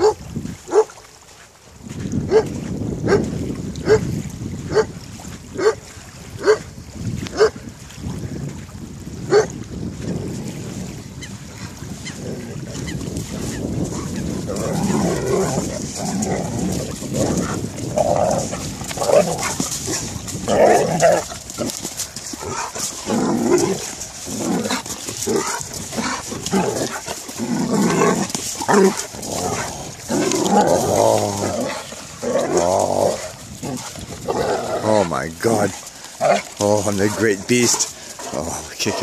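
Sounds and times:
dogs play-fighting: 12.8s - 34.6s.

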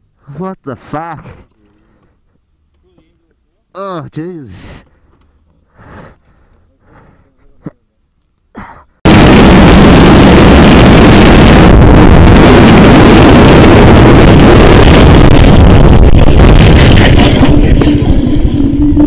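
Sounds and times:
wind roar on microphone: 9.1s - 19.0s.

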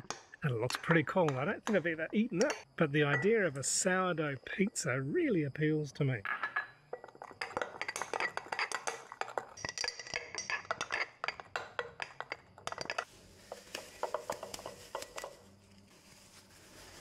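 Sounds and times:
spoon clinking in glass jar: 6.3s - 13.1s
plastic cling wrap crinkling: 13.2s - 17.0s.

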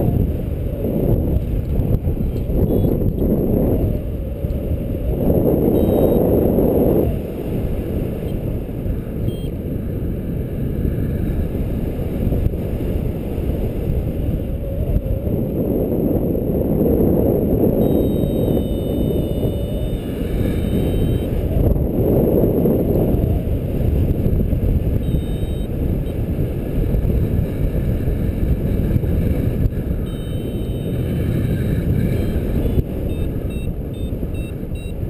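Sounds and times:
wind buffeting microphone: 0.0s - 35.0s.

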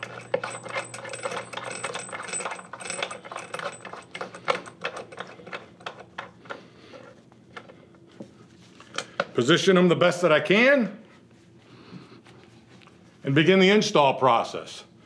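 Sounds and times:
metal bolt clicking and clinking: 0.0s - 6.4s.

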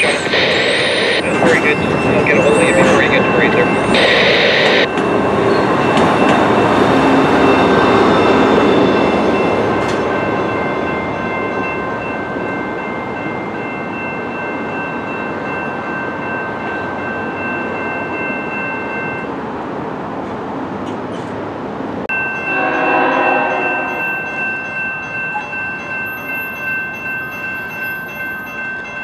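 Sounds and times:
steady high-pitched tone: 0.0s - 9.6s
train rumbling past: 0.0s - 29.0s.

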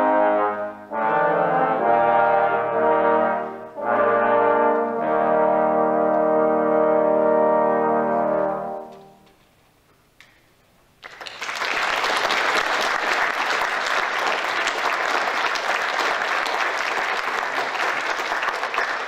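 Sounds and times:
audience applauding: 11.0s - 19.0s.

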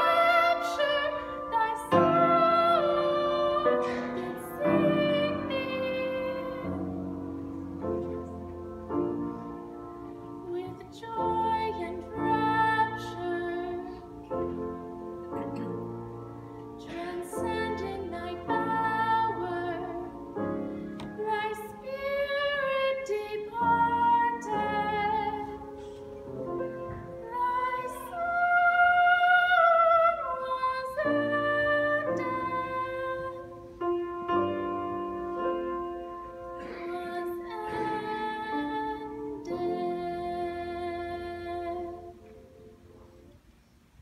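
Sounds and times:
woman singing with vibrato: 0.0s - 7.1s, 10.4s - 14.2s, 16.8s - 20.3s, 21.2s - 25.9s, 27.2s - 33.8s, 36.6s - 42.3s
grand piano: 0.0s - 44.0s.

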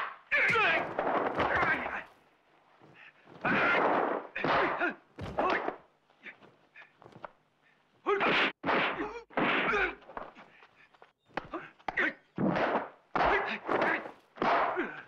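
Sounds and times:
fighters shouting: 0.3s - 2.2s, 2.9s - 6.9s, 13.2s - 15.0s
punch and kick impacts: 0.4s - 2.2s, 2.8s - 5.8s, 8.2s - 10.2s, 11.4s - 15.0s.

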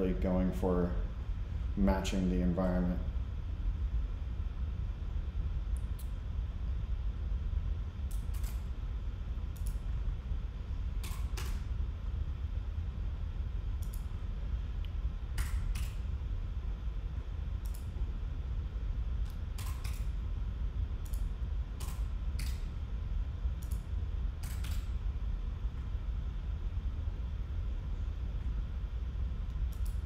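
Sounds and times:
low background hum: 0.0s - 30.0s
computer keys and mouse clicks: 8.1s - 8.6s, 9.5s - 9.8s, 11.0s - 11.6s, 13.8s - 14.1s, 15.4s - 16.0s, 17.6s - 17.9s, 19.2s - 20.1s, 21.0s - 22.7s, 23.6s - 24.9s, 29.7s - 30.0s.

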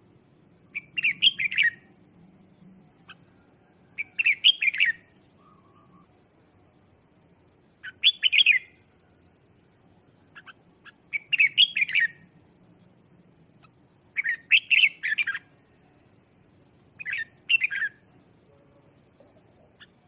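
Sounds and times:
bird warbling song: 0.5s - 6.7s, 7.8s - 8.9s, 9.9s - 12.3s, 13.4s - 18.2s, 19.0s - 20.0s.

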